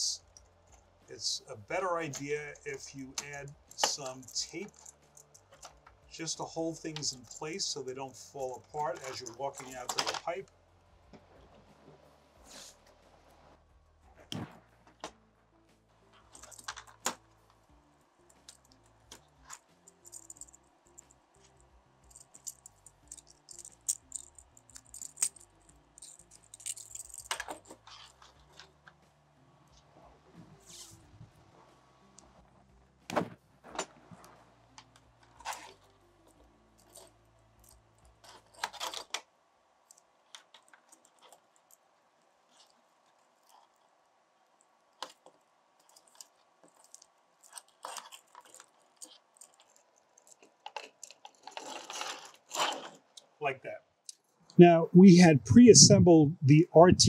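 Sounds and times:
small metal parts clicking and jingling: 0:02.2 - 0:07.6, 0:16.2 - 0:17.2, 0:18.2 - 0:28.8, 0:35.3 - 0:39.2, 0:39.8 - 0:41.8, 0:45.0 - 0:53.3
brief rustle: 0:50.6 - 0:53.3.

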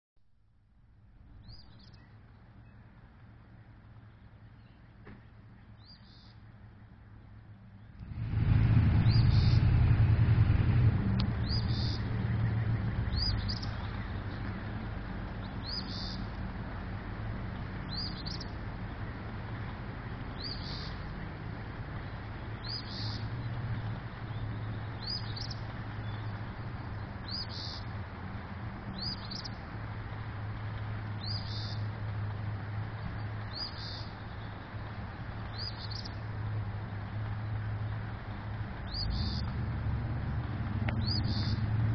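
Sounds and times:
low hum and rushing noise: 0:00.3 - 0:41.9
bird chirping: 0:01.4 - 0:02.8, 0:05.6 - 0:06.4, 0:09.0 - 0:09.7, 0:11.2 - 0:14.5, 0:15.4 - 0:16.3, 0:17.8 - 0:18.6, 0:20.4 - 0:21.2, 0:22.0 - 0:27.9, 0:28.9 - 0:29.6, 0:31.2 - 0:31.8, 0:33.0 - 0:34.6, 0:35.5 - 0:36.2, 0:38.8 - 0:39.5, 0:40.9 - 0:41.6.

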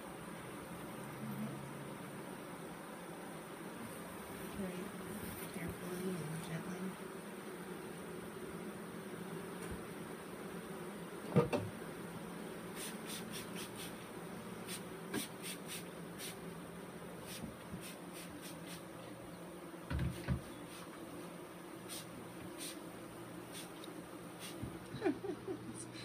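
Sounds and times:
bee swarm humming: 0:00.0 - 0:26.0
dull wooden knocks: 0:11.3 - 0:11.7, 0:19.8 - 0:20.5
spray bottle hissing sprays: 0:12.7 - 0:14.0, 0:14.6 - 0:16.4, 0:17.2 - 0:18.9, 0:21.8 - 0:22.8, 0:23.5 - 0:23.8, 0:24.4 - 0:24.7.

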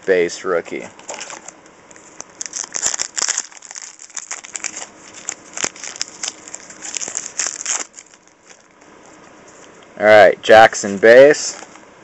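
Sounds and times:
wrapper crinkling: 0:00.6 - 0:08.8.

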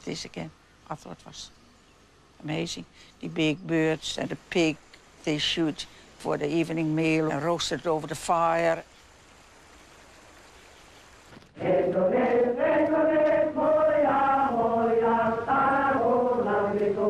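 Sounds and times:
faint hiss: 0:00.0 - 0:17.0
voices chanting: 0:11.6 - 0:17.0.

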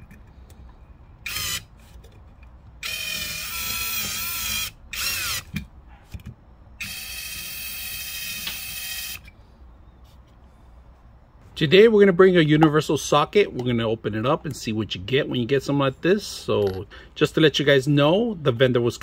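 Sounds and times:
cordless drill motor whining: 0:01.2 - 0:01.7, 0:02.8 - 0:05.5, 0:06.8 - 0:09.4.

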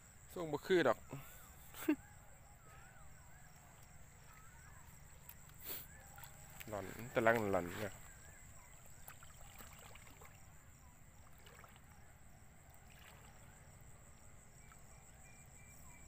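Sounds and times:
shallow water sloshing: 0:03.4 - 0:15.6.

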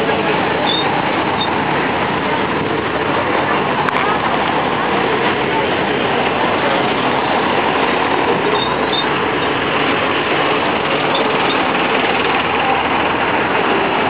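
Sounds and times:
road train engine and road noise: 0:00.0 - 0:14.0.

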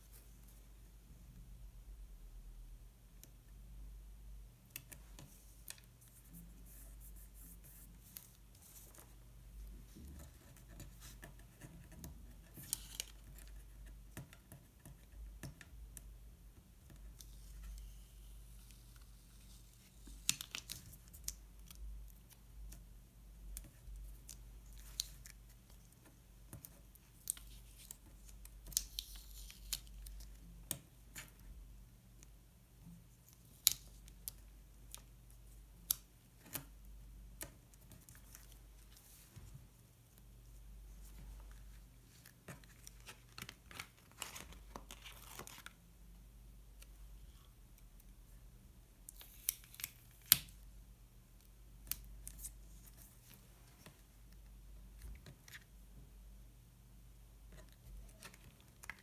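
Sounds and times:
paper rustling and crinkling: 0:40.9 - 0:45.8.

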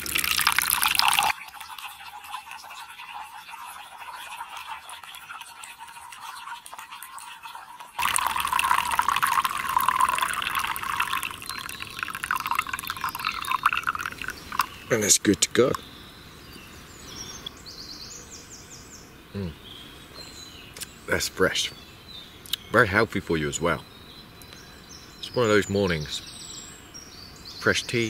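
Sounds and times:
liquid trickling into a mug: 0:00.0 - 0:15.8.

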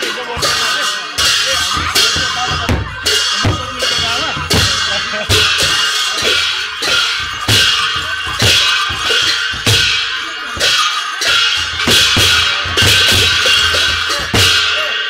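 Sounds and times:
drum beat: 0:00.0 - 0:15.0
hand cymbals clashing: 0:00.0 - 0:15.0.

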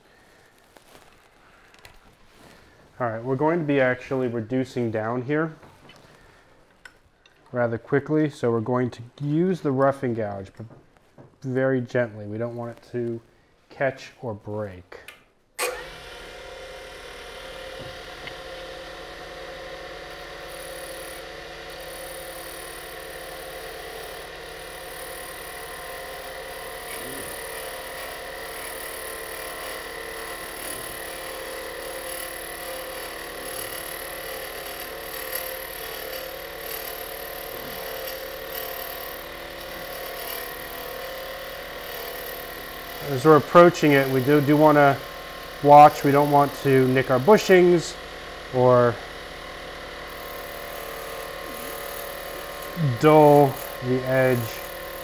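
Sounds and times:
lathe motor hum: 0:15.6 - 0:55.0
gouge scraping spinning wood: 0:17.2 - 0:55.0.

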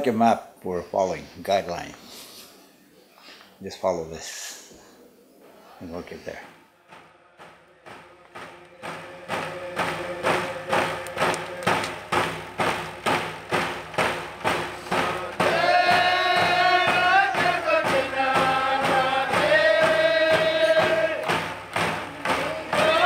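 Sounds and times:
voices singing long notes: 0:05.4 - 0:12.3, 0:14.8 - 0:23.0
steady drum beat: 0:06.9 - 0:23.0.

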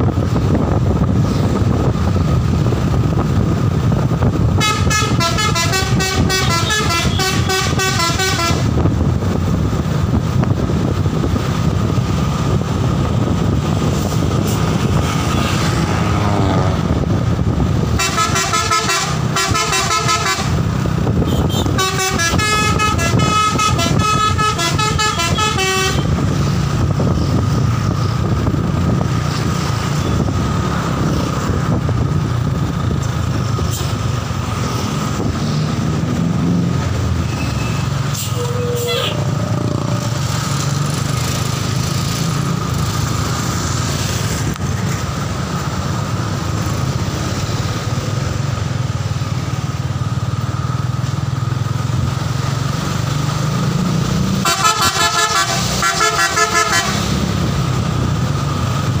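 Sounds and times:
bus engine running: 0:00.0 - 0:59.0
multi-tone air horn melody: 0:04.6 - 0:08.7, 0:18.0 - 0:20.6, 0:21.2 - 0:26.2, 0:38.2 - 0:39.4, 0:54.4 - 0:57.2.

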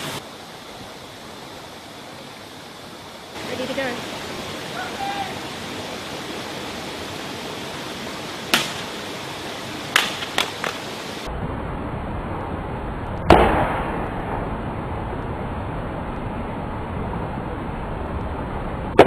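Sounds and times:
steady rushing noise: 0:00.0 - 0:19.0
loud echoing crack: 0:08.5 - 0:09.0, 0:09.9 - 0:10.9, 0:13.3 - 0:14.5.

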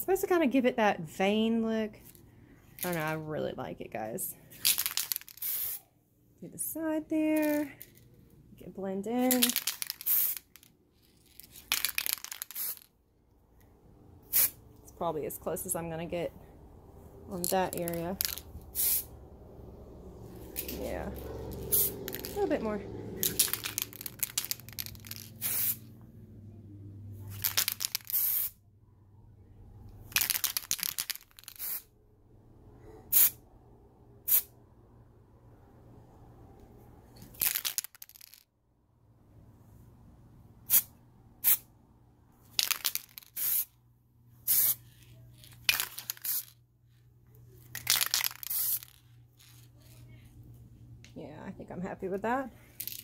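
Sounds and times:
spray paint can hissing: 0:05.1 - 0:05.8, 0:09.8 - 0:10.5, 0:12.3 - 0:12.9, 0:14.3 - 0:14.6, 0:18.7 - 0:19.1, 0:21.7 - 0:22.2, 0:23.4 - 0:25.9, 0:28.0 - 0:28.6, 0:31.4 - 0:31.9, 0:42.9 - 0:43.7, 0:44.5 - 0:44.8, 0:46.0 - 0:46.5, 0:48.3 - 0:49.0.

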